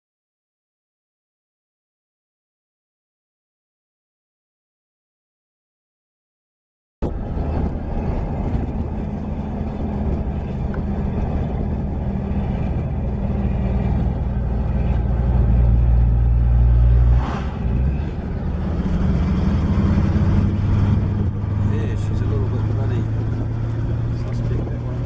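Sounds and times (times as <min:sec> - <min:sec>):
car engine drone and road noise: 0:07.0 - 0:25.0.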